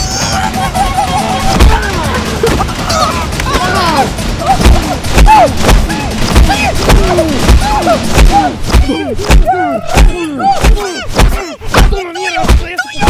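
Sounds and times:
punches thudding on a body: 4.6 - 12.7.

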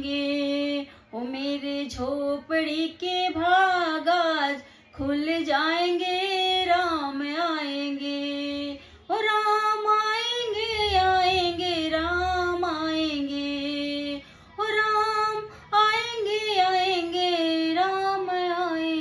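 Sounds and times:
woman singing devotional song: 0.0 - 19.0
singer breathing: 4.6 - 5.0, 8.8 - 9.1, 14.2 - 14.6.

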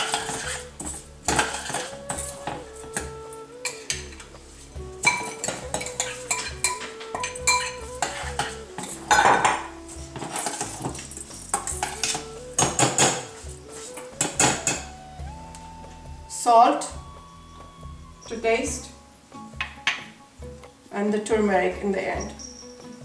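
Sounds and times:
spoon scraping saucepan: 0.0 - 14.9
metal spoon clinking on saucepan: 5.0 - 9.6, 22.2 - 23.0.

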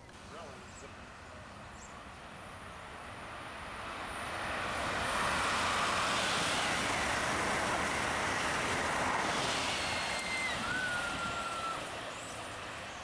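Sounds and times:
passenger train passing at speed: 0.0 - 13.0.

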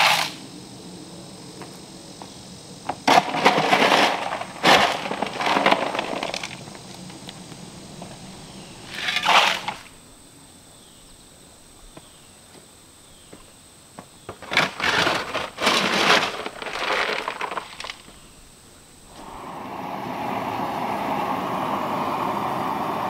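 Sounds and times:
shovel scraping stony dirt: 0.0 - 0.4, 3.1 - 6.6, 8.9 - 9.9, 14.4 - 18.1
dirt dumped into wheelbarrow: 3.0 - 7.0, 8.9 - 9.9, 14.4 - 18.2.

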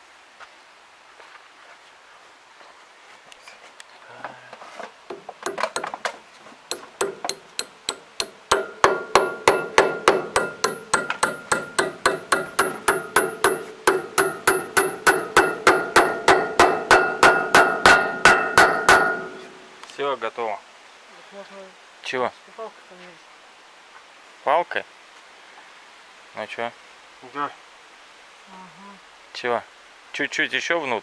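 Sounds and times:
hammer tapping on metal: 5.1 - 6.1, 6.7 - 19.7.

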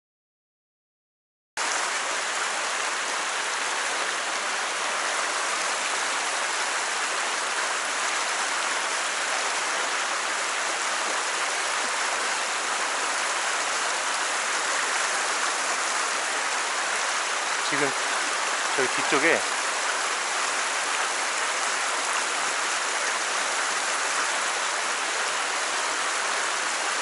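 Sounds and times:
stream rushing over rocks: 1.6 - 27.0.

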